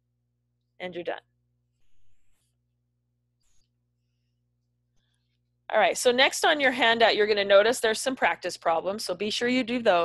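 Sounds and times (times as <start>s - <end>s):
marker squeaking on paper: 1.8s - 2.5s.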